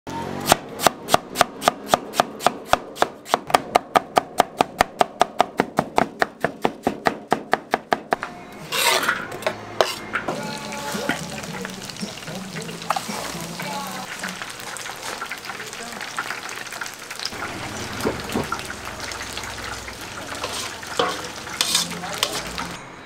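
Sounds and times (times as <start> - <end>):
knife chopping on cutting board: 0.5 - 8.2
rough scrape: 8.6 - 11.0, 20.3 - 22.8.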